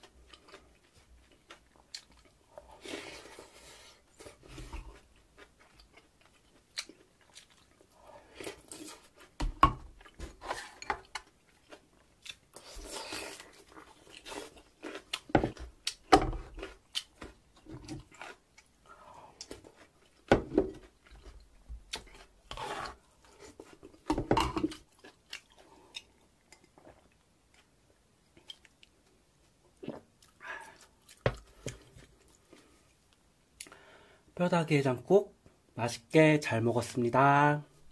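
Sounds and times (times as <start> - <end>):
slurping and chewing: 0.0 - 29.1.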